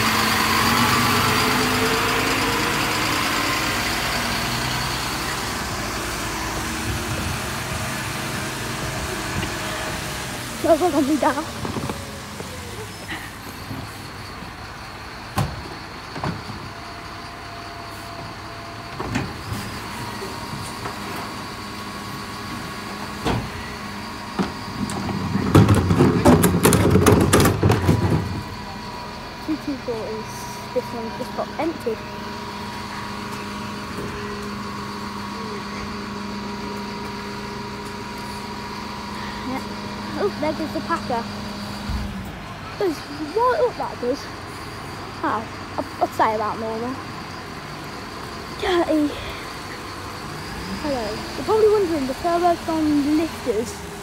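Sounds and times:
bin lorry engine running: 0:00.0 - 0:54.0
constant whine: 0:00.0 - 0:54.0
wheelie bin rolling: 0:24.4 - 0:28.8.

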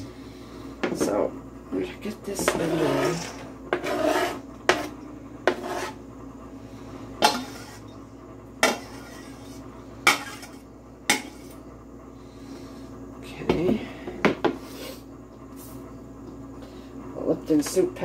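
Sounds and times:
scraping in a bowl: 0:02.3 - 0:06.0, 0:07.2 - 0:08.0, 0:08.6 - 0:11.6.

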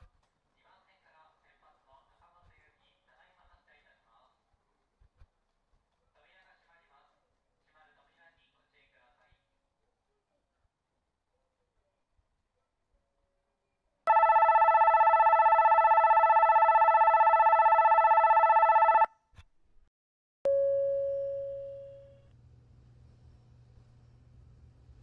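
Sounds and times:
platform departure bell ringing: 0:14.1 - 0:19.1.

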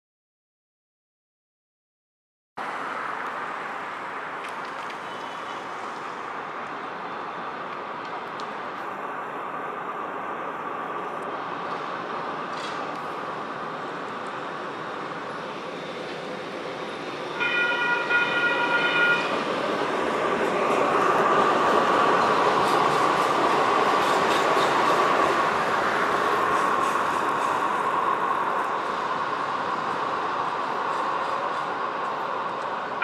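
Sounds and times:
light rail train rumbling: 0:02.6 - 0:33.0
train horn blast: 0:17.4 - 0:19.4.

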